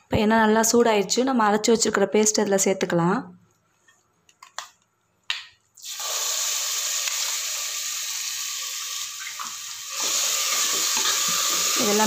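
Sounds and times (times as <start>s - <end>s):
spice paste sizzling in oil: 5.8s - 12.0s.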